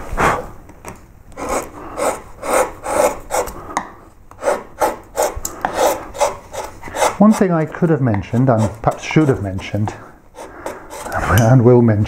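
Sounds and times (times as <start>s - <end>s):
gouge scraping through wood: 1.4s - 3.6s, 4.3s - 11.3s.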